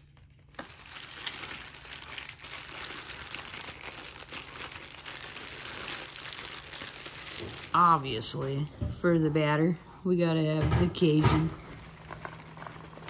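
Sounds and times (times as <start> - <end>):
plastic bag crinkling: 0.0 - 8.5, 11.6 - 13.0.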